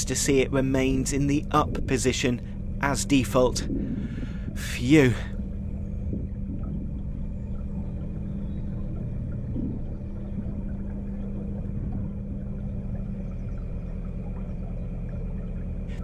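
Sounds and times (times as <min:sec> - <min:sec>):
boat engine low hum: 0:00.0 - 0:16.0.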